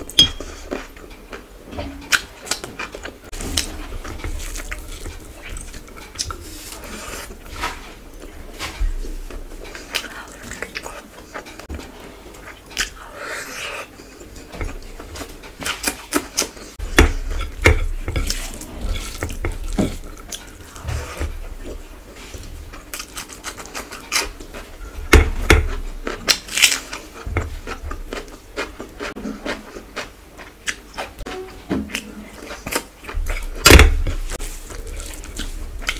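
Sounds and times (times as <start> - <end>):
wet chewing and smacking: 0.4 - 35.9
fingers mixing food on plate: 2.1 - 13.0, 13.9 - 35.9.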